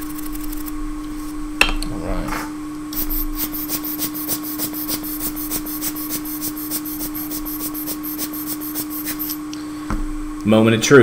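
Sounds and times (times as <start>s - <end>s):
chip scrubbing on paper: 0.0s - 0.7s, 3.0s - 9.4s
steady hum: 0.0s - 11.0s.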